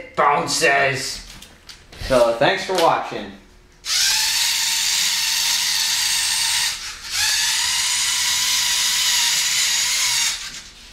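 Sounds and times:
toy car motors whining: 0:03.8 - 0:10.8.

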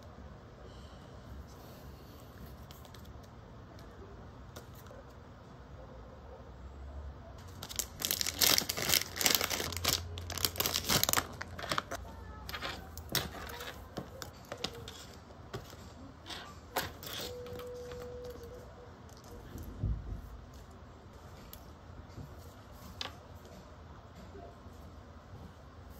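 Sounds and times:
plastic packaging crinkling: 0:07.4 - 0:15.0.

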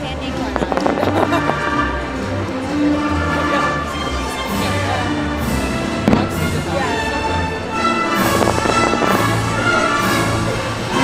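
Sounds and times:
orchestral music: 0:00.0 - 0:11.0
fireworks bangs and pops: 0:00.6 - 0:01.7, 0:06.0 - 0:06.6, 0:08.2 - 0:10.0.

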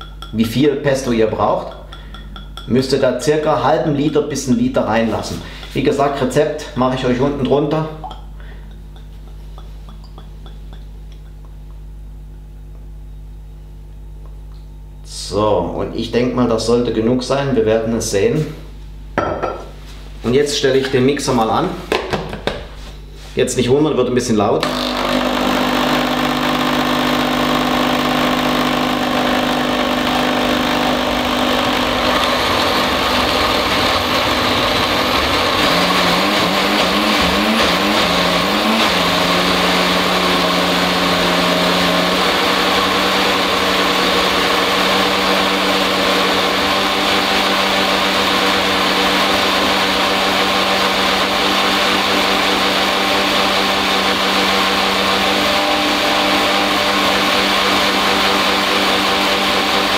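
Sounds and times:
blender motor whine: 0:24.6 - 0:59.9.

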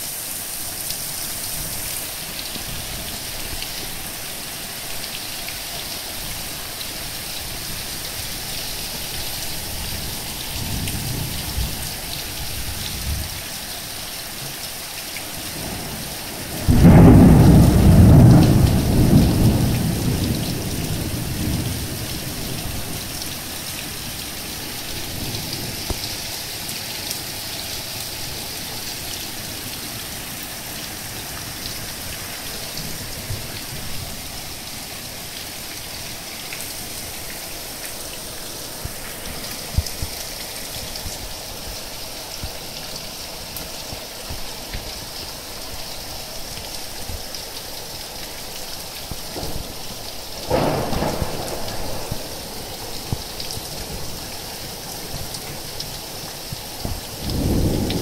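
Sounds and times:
heavy rain on ground: 0:00.0 - 0:58.0
close thunderclap: 0:15.6 - 0:22.8, 0:49.4 - 0:54.1, 0:56.9 - 0:58.0
low thunder rumble: 0:15.6 - 0:23.5, 0:49.4 - 0:54.2, 0:56.9 - 0:58.0.

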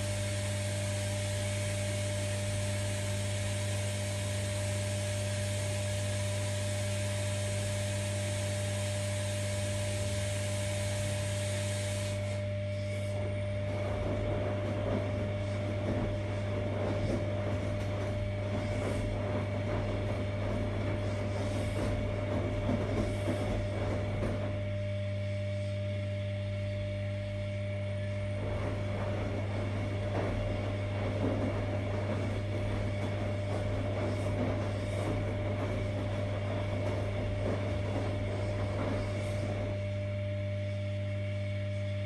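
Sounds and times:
washing machine humming: 0:00.0 - 0:42.0
drum tumbling noise: 0:13.2 - 0:24.8, 0:28.3 - 0:40.0.

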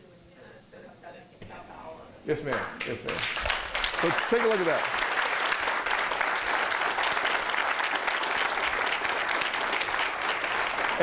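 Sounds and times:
audience applause: 0:02.8 - 0:11.0.

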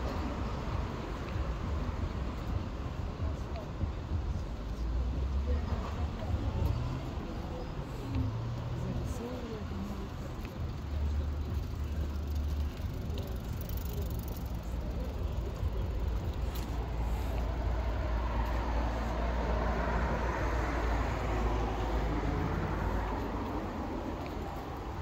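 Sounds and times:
traffic rumble: 0:00.0 - 0:25.0
vehicle passing: 0:04.6 - 0:25.0.

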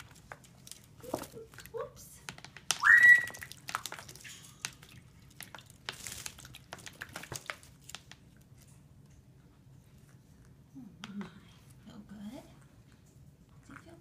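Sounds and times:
bird splashing in water: 0:02.6 - 0:08.0.

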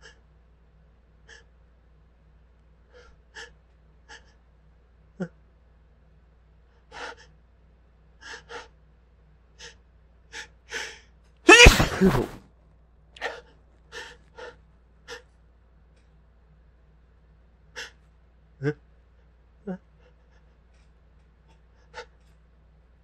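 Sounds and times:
loud sneeze: 0:11.5 - 0:12.4.

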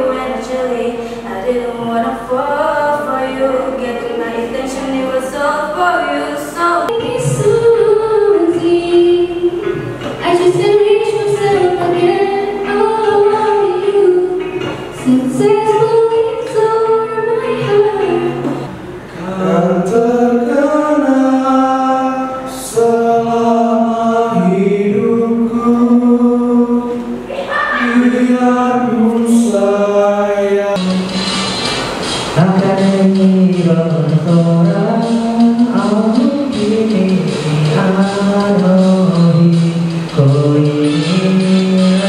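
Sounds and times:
girl singing through a microphone: 0:00.0 - 0:18.7
boys singing: 0:06.0 - 0:42.0.

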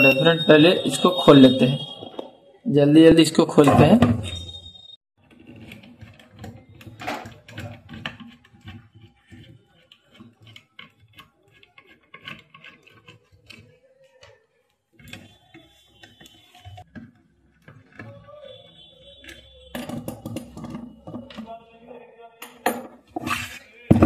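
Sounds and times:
screwdriver clicks and scrapes: 0:05.3 - 0:14.4, 0:15.0 - 0:17.0.

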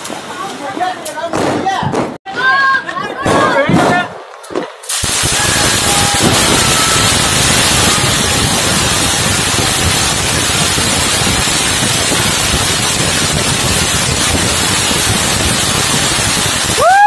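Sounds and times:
firework fountain hissing: 0:04.8 - 0:17.0.

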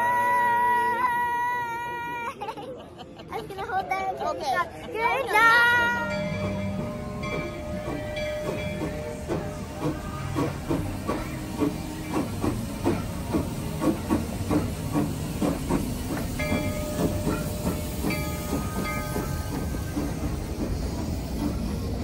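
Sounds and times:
steam locomotive chuffing: 0:05.3 - 0:22.0
steam hiss: 0:05.8 - 0:22.0.

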